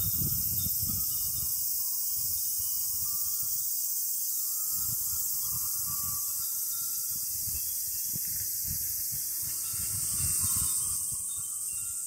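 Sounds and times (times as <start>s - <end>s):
wind buffeting microphone: 0.0s - 3.6s, 4.7s - 12.0s
cicadas droning: 0.0s - 12.0s.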